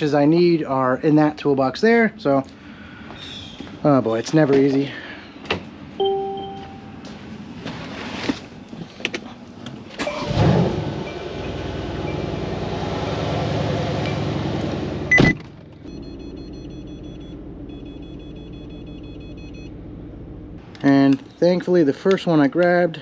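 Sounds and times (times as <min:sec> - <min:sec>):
faint repeating high tone: 0:06.0 - 0:07.0.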